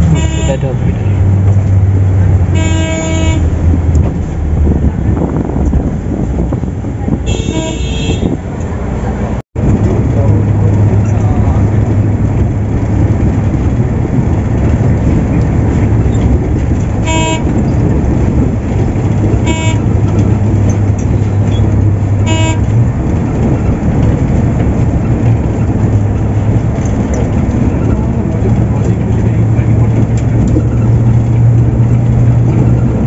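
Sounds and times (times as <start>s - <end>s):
bus horn toots: 0.0s - 1.4s, 2.4s - 3.7s, 7.1s - 8.5s, 16.8s - 18.5s, 19.2s - 23.8s
bus engine drone: 0.0s - 33.0s
road noise: 0.0s - 33.0s.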